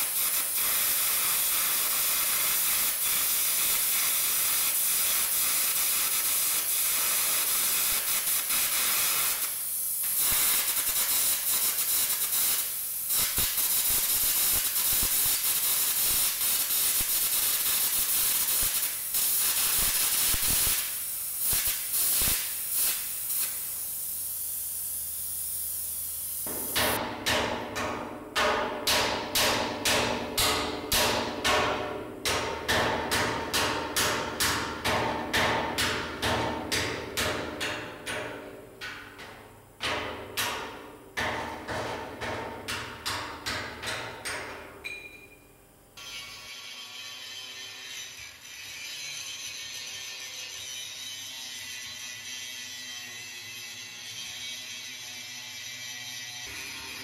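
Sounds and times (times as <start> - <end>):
gouging torch hissing and crackling: 0.0 - 27.0
hammer striking steel: 26.5 - 45.3.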